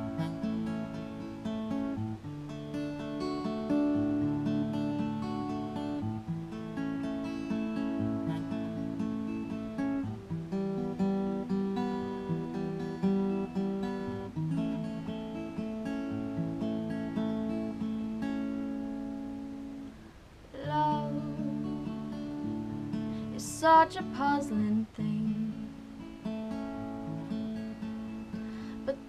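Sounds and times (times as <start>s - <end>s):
person singing: 0.0s - 0.7s, 20.6s - 22.5s, 23.2s - 25.7s, 28.7s - 29.0s
acoustic guitar chords: 0.0s - 29.0s.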